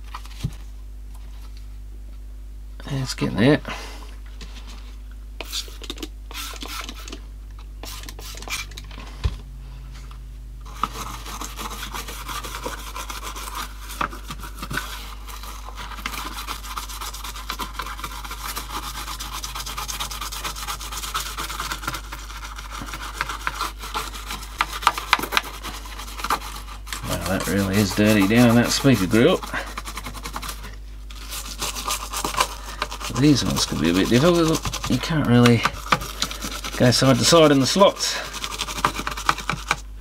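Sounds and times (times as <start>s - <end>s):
brush scrubbing plastic grille: 10.7s - 39.9s.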